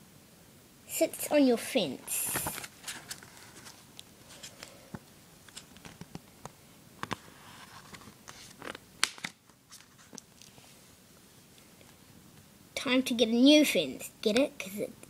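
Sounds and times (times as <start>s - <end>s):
device handling clicks and rustles: 2.3s - 10.6s.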